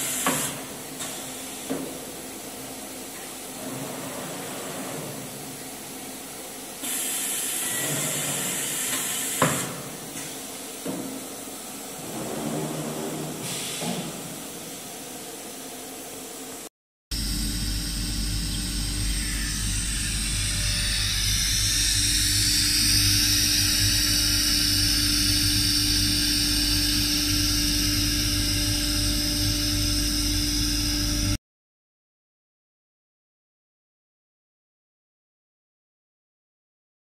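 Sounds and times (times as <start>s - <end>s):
low hum: 17.1s - 31.4s
router spindle whine: 17.1s - 31.4s.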